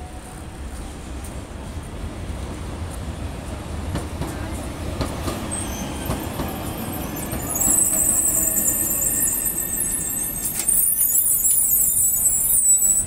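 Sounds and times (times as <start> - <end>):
tram wheels rumbling on track: 0.0 - 13.0
wheel squeal: 5.5 - 13.0.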